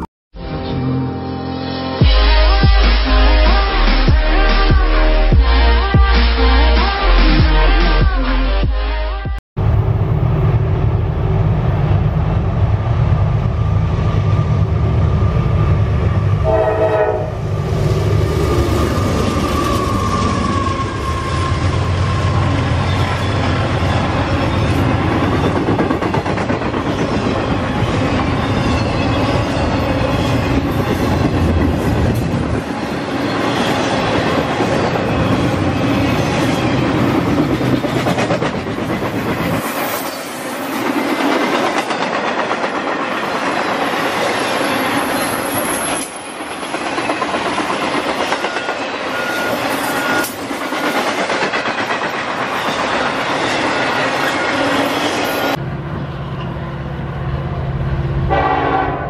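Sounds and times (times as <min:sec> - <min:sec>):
train wheels clacking: 0:33.2 - 0:55.6.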